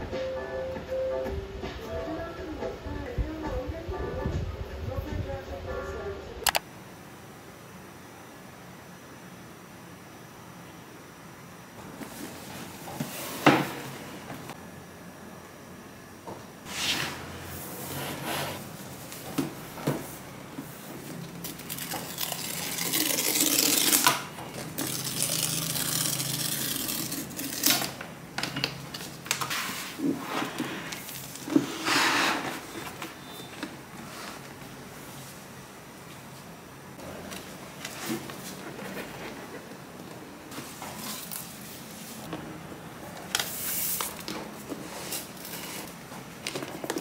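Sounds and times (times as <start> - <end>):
paper strip tearing: 21.5 - 24.2, 24.8 - 28.0.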